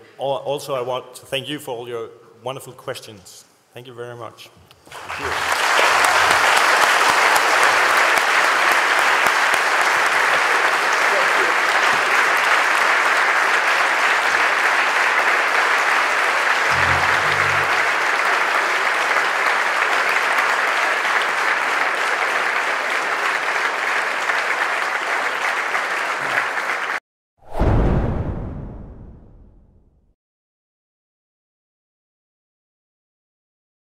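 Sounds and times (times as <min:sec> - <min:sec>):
audience applauding: 0:04.9 - 0:27.0
deep boom: 0:16.7 - 0:18.0, 0:27.5 - 0:30.0.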